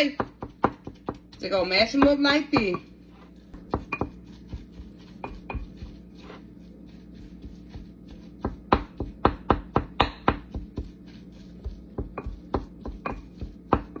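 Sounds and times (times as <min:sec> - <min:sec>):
wooden spoon tapping glass bowl: 0:03.6 - 0:04.2, 0:12.0 - 0:14.0.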